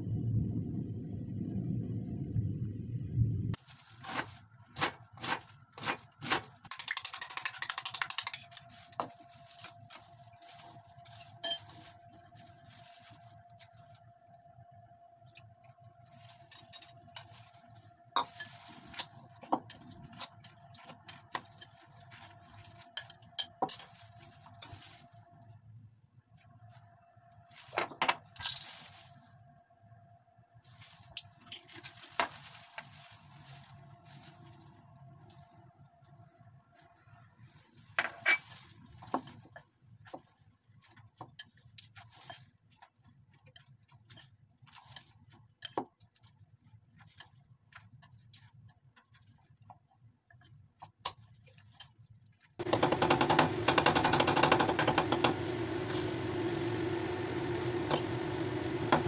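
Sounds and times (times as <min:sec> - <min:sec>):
faint steady hum: 0:00.0 - 0:03.6
loud steady noise with low hum: 0:52.6 - 0:59.0.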